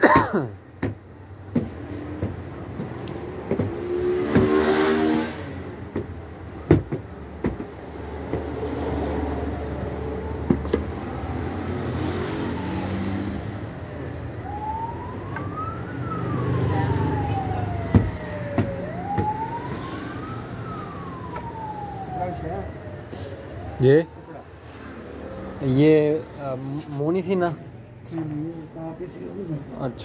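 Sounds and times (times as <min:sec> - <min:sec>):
sharp knocks: 0:00.1 - 0:04.7, 0:05.9 - 0:08.5
siren wailing: 0:09.5 - 0:25.7.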